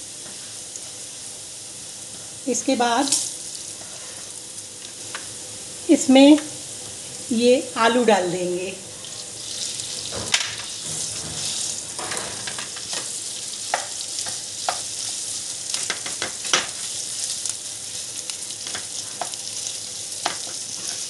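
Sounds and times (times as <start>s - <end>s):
mashed potato sizzling in oil: 0.0s - 21.0s
spatula tapping and scraping pan: 10.2s - 14.9s, 20.2s - 21.0s.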